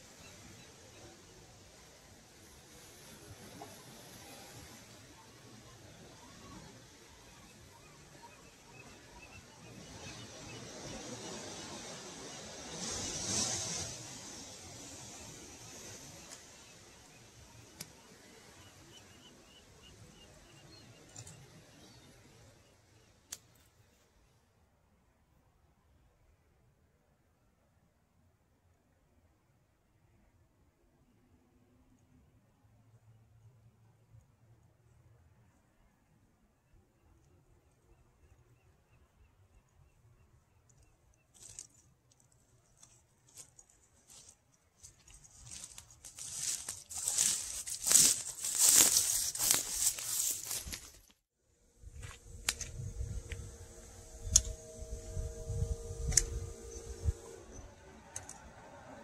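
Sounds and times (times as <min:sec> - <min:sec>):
faint hiss: 0:00.0 - 0:23.7
handling rustles and clicks: 0:41.4 - 0:51.2.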